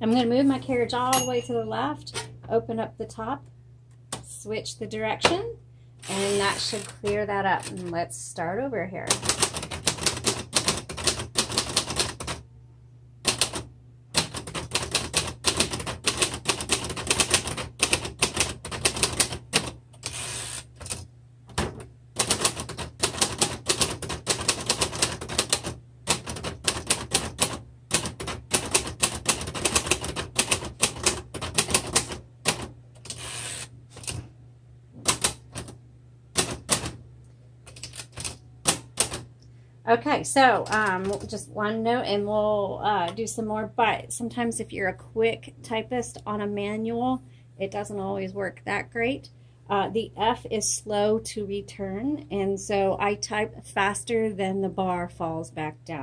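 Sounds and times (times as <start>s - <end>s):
typewriter keystroke clacks: 13.3s - 13.6s, 20.8s - 33.2s.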